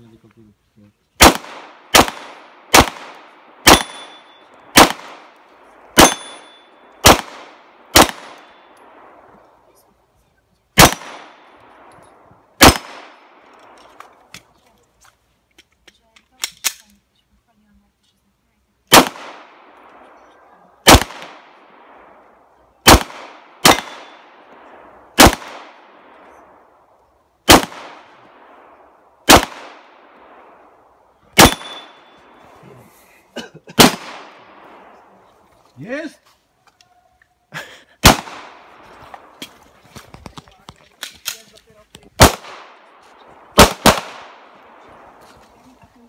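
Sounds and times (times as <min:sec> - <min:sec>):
handgun shots echoing: 0:01.2 - 0:09.0, 0:10.8 - 0:12.0, 0:12.6 - 0:14.5, 0:18.9 - 0:20.1, 0:20.8 - 0:21.6, 0:22.8 - 0:26.3, 0:27.5 - 0:28.5, 0:29.3 - 0:30.1, 0:31.4 - 0:32.3, 0:33.8 - 0:34.8, 0:38.0 - 0:39.6, 0:42.2 - 0:44.9.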